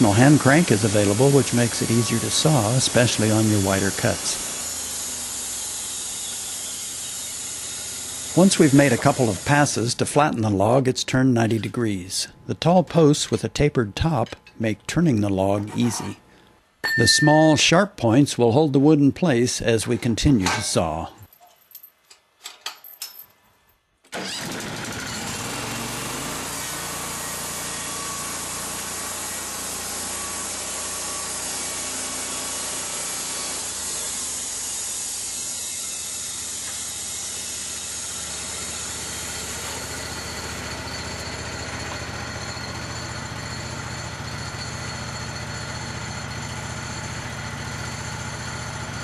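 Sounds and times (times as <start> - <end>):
bandsaw mill sawing a log: 0.0 - 14.2, 24.2 - 49.0
faint metal clinks: 21.2 - 23.4.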